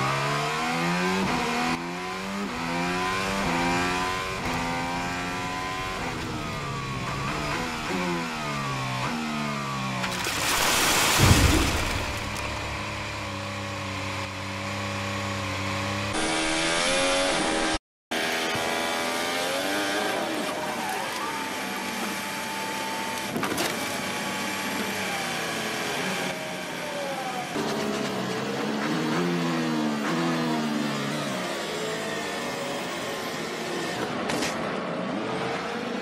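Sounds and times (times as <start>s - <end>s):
loud crash: 11.1s - 12.6s.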